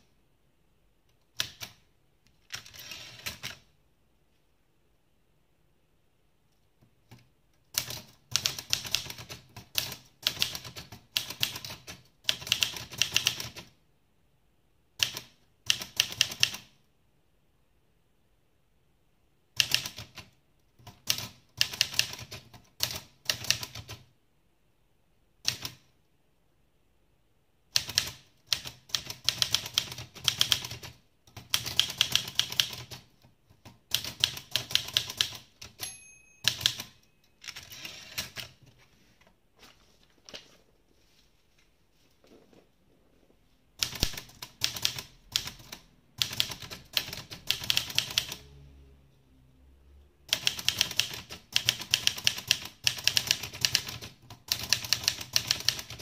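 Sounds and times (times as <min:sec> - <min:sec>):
manual typewriter typing: 0:02.4 - 0:03.7, 0:07.1 - 0:13.7, 0:15.0 - 0:16.7, 0:19.6 - 0:24.0, 0:27.8 - 0:38.6, 0:43.8 - 0:48.4, 0:50.3 - 0:56.0.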